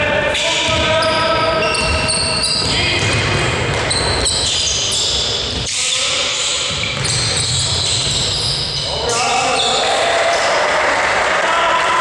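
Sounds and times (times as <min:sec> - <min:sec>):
sneakers squeaking on court: 0:00.4 - 0:09.8
basketball dribbling: 0:00.6 - 0:08.9.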